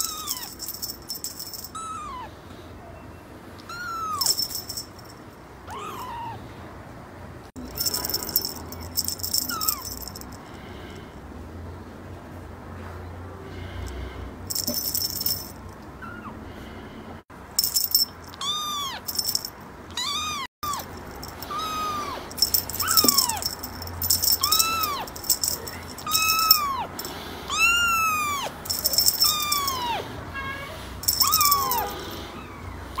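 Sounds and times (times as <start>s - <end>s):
kitten meowing: 0.0s - 0.5s, 1.8s - 2.3s, 3.6s - 4.3s, 5.7s - 6.4s, 9.5s - 9.9s, 18.3s - 19.1s, 19.9s - 23.5s, 24.4s - 25.1s, 26.0s - 33.0s
small bells jingling: 0.0s - 2.2s, 4.0s - 5.4s, 7.6s - 10.6s, 14.5s - 15.9s, 17.6s - 19.6s, 20.2s - 30.0s, 31.0s - 32.6s.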